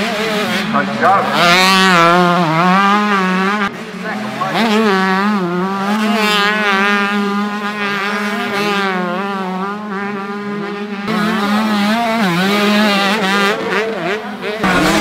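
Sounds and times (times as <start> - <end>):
motocross bikes revving: 0.0 - 15.0
motorbike passing close: 0.0 - 15.0.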